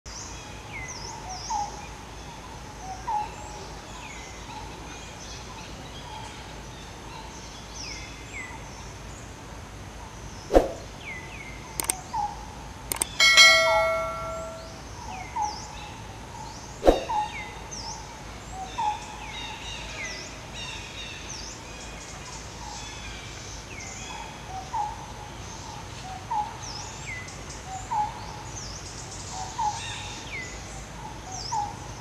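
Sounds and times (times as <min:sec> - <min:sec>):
sharp click: 0:11.8 - 0:12.0, 0:12.9 - 0:14.6
birds chirping: 0:11.8 - 0:15.7, 0:16.6 - 0:18.0
bell-like chime: 0:13.1 - 0:14.8.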